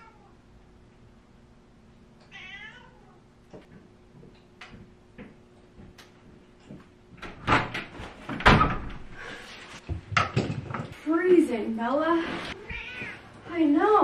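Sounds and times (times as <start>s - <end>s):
door knocking and bumping: 7.2s - 9.0s.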